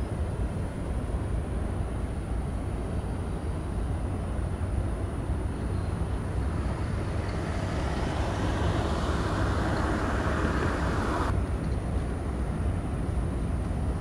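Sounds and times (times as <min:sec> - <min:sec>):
boat engines rumbling: 0:00.0 - 0:14.0
rush of water from wash: 0:05.4 - 0:11.4.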